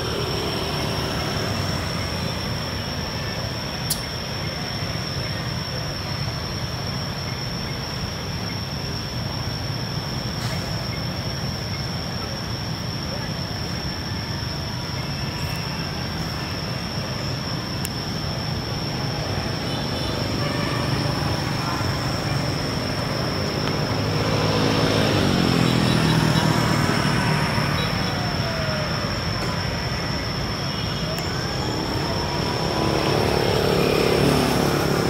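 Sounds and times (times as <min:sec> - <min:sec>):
engine passing by: 0:00.0 - 0:02.6, 0:18.8 - 0:29.6, 0:31.4 - 0:35.0
road traffic noise: 0:00.0 - 0:35.0.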